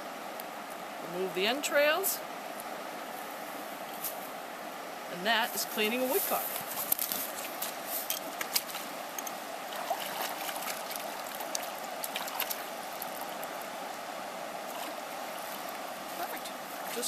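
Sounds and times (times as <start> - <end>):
stream water flowing: 0.0 - 17.0
hands splashing in water: 9.7 - 13.5.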